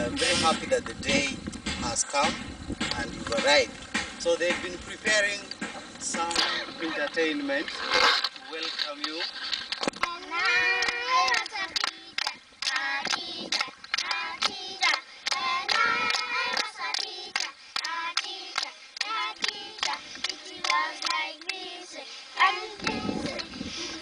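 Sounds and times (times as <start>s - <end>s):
hands clapping: 2.8s - 3.6s, 9.0s - 9.2s, 9.8s - 21.6s, 22.8s - 23.5s
children singing: 10.0s - 24.0s.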